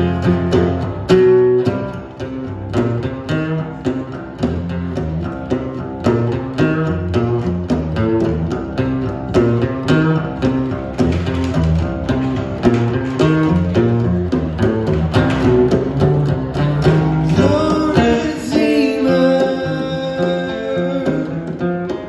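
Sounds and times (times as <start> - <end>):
acoustic guitar: 0.0 - 22.0
bongos tapping: 0.0 - 22.0
person singing: 17.2 - 22.0.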